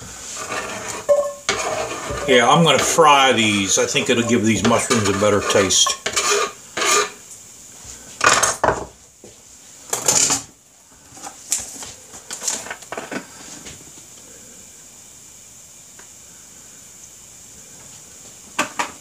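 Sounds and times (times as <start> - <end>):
knife scraping on cutting board: 0.2 - 7.2.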